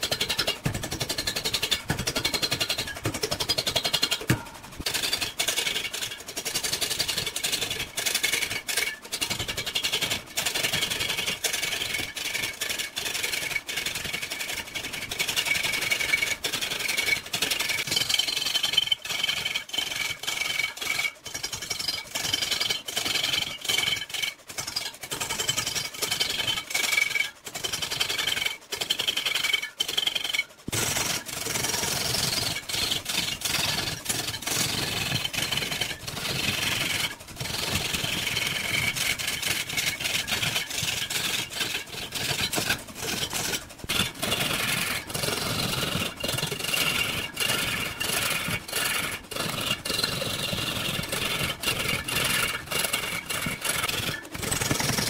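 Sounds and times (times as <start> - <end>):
lathe tool scraping wood: 13.8 - 55.0.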